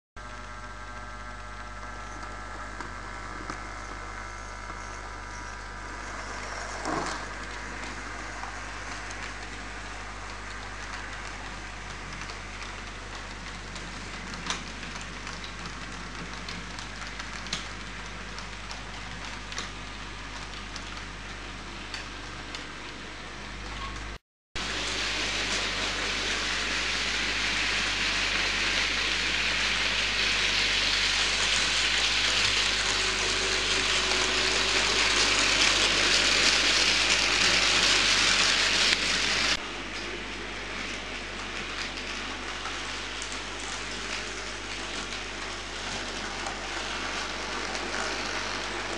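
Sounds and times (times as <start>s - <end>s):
model train running hiss: 24.6s - 39.6s, 40.6s - 48.9s
loud rain-like hiss: 24.6s - 39.8s.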